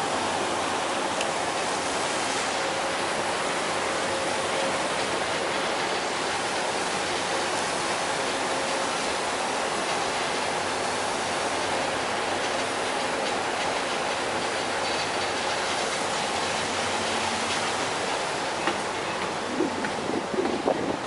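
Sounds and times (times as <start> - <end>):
ferry engine hum: 0.0 - 21.0
water churning: 0.0 - 21.0.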